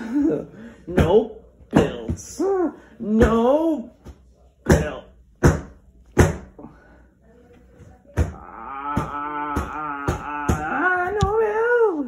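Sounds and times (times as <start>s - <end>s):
person humming: 8.4s - 11.4s.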